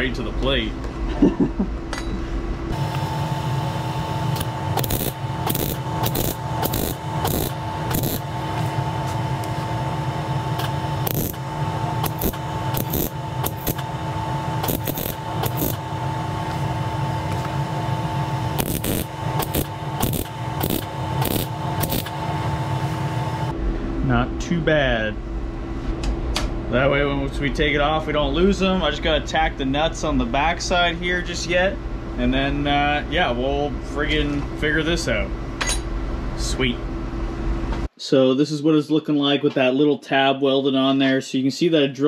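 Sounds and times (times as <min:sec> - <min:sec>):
welder hum: 0:02.7 - 0:23.5
welding arc crackling sizzle: 0:02.8 - 0:23.5.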